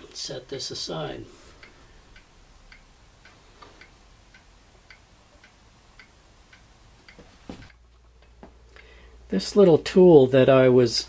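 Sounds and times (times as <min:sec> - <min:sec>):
mechanical clock ticking: 0:00.0 - 0:08.3.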